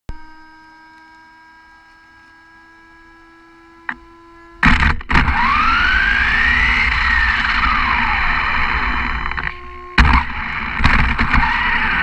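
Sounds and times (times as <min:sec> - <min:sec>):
faint steady hum: 0:00.1 - 0:12.0
toy truck motor whine: 0:00.1 - 0:12.0
tyre and road rumble: 0:03.9 - 0:12.0.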